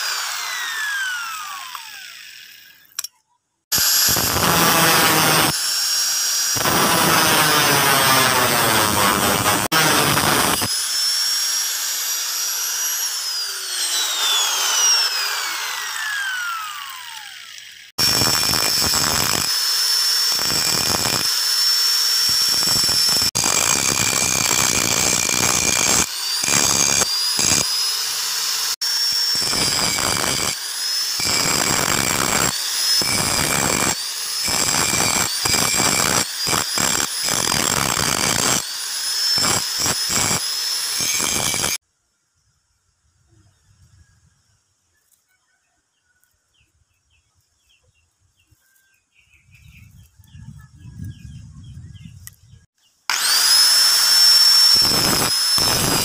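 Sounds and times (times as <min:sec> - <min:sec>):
angle grinder grinding steel blade: 0:00.0 - 0:03.1, 0:03.7 - 0:41.8, 0:53.1 - 0:56.0.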